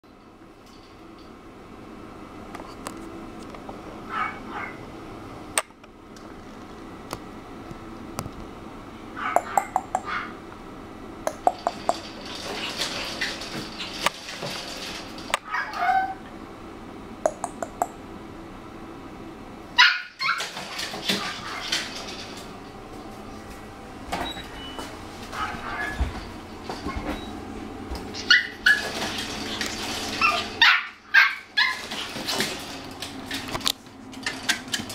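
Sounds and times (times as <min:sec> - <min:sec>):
puppy whining and yipping: 0:15.5 - 0:16.2, 0:19.8 - 0:20.6, 0:25.4 - 0:26.1, 0:28.2 - 0:29.0, 0:30.1 - 0:32.0.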